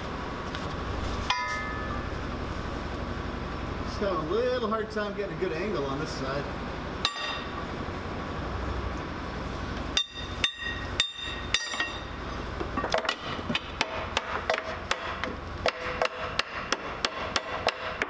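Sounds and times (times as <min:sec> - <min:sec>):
hammer clanging on steel: 0:01.3 - 0:02.0, 0:07.1 - 0:07.5, 0:10.0 - 0:12.1.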